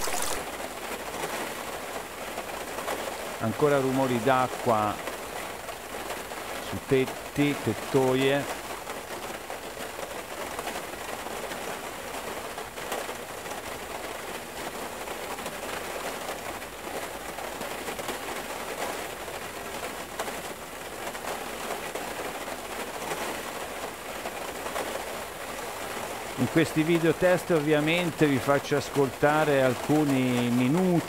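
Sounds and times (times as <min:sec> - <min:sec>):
hail falling on a roof: 0:00.0 - 0:31.0.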